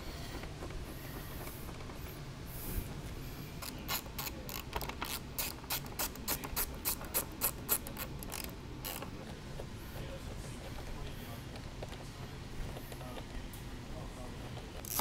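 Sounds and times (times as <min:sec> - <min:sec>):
hand ratchet clicking: 0:03.6 - 0:09.1.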